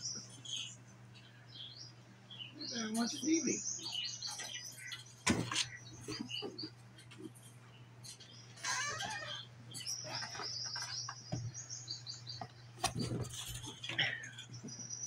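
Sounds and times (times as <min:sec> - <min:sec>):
bird chirping: 0:00.0 - 0:15.0
steady low hum: 0:00.0 - 0:15.0.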